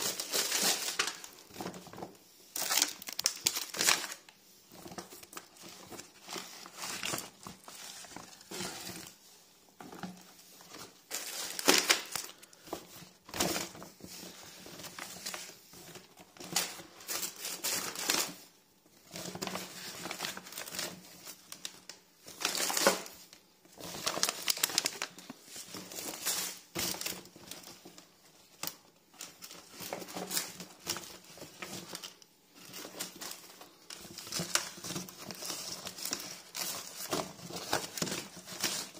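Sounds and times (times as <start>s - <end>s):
grocery bags crinkling and rustling: 0.0s - 9.2s, 9.8s - 38.9s.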